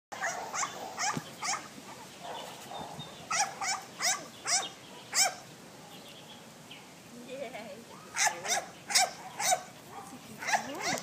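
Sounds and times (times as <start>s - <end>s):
dog yipping: 0.2s - 5.4s, 7.9s - 11.0s.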